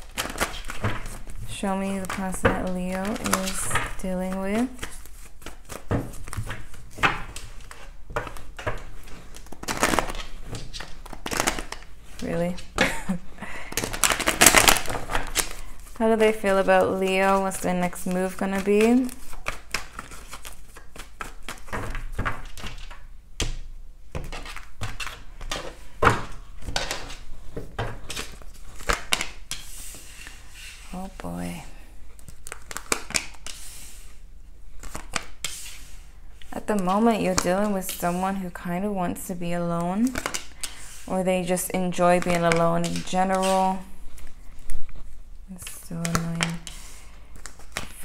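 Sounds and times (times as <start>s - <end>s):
cards riffling: 0.0s - 2.3s, 4.7s - 11.9s, 13.7s - 16.0s, 46.0s - 48.0s
cards being shuffled: 0.0s - 12.9s, 13.7s - 23.0s, 24.1s - 31.4s, 32.2s - 34.1s, 34.7s - 38.3s, 40.0s - 41.1s, 41.9s - 48.0s.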